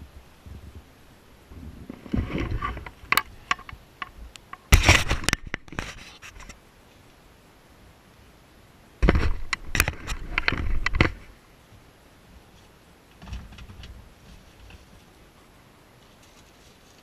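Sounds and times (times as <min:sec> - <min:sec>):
rustling and scraping: 0:01.5 - 0:07.0, 0:09.0 - 0:11.3, 0:12.4 - 0:15.3, 0:16.0 - 0:17.0.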